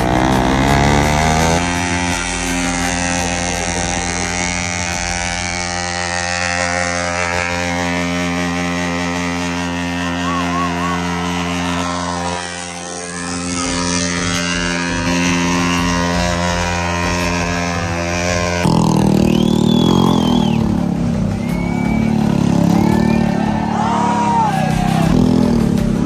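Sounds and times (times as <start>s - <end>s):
motorcycle engine at high revs: 0.0s - 26.0s.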